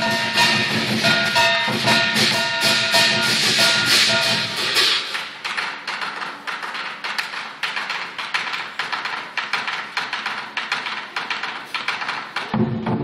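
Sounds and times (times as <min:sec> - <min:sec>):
sharp light percussion strikes: 0:00.0 - 0:07.4
deep drum: 0:12.5 - 0:13.0.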